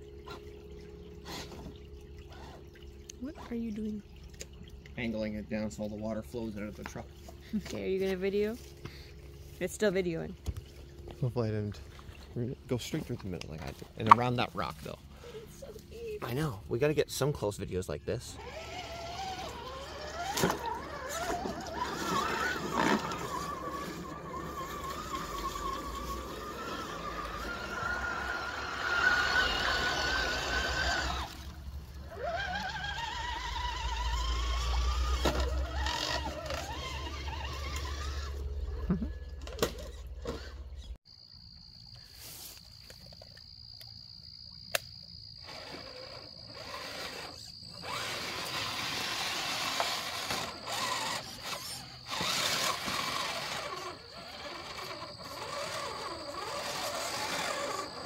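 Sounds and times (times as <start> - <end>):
splashing water: 0.0 - 9.5, 18.4 - 38.3
electric motors whining: 18.2 - 41.0, 45.3 - 58.0.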